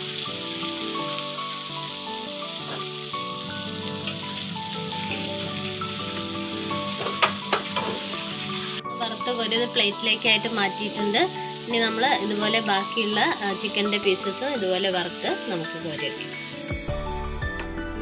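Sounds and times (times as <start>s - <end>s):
chicken deep-frying in oil: 0.0s - 16.7s.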